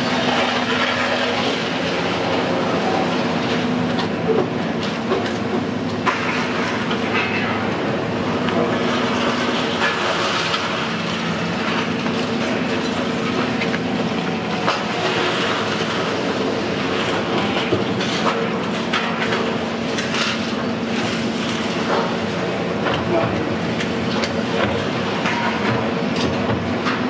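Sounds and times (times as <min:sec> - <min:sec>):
mechanical rumble with low hum: 0:00.0 - 0:27.0.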